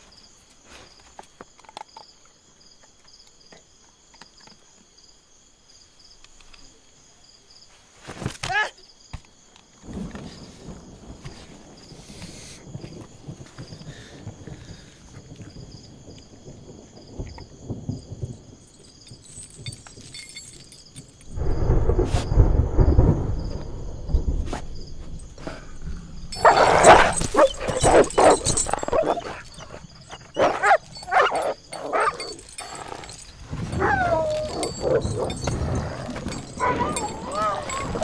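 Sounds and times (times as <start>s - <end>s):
low rumble: 21.4s - 26.4s
dog barking: 26.4s - 32.4s, 36.6s - 38.0s
dog whining: 26.4s - 38.0s.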